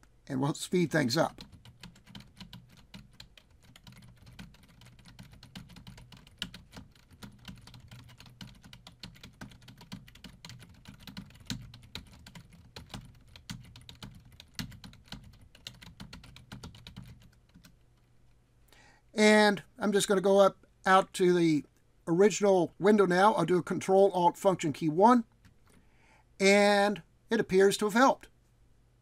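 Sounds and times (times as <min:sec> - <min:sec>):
computer keyboard typing: 0:01.3 - 0:17.8.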